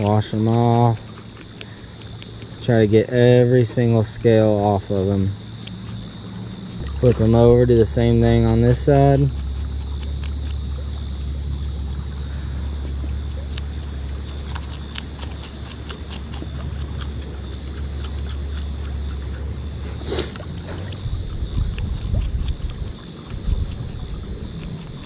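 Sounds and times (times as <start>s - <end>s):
wind rumble on microphone: 19.4s - 25.0s.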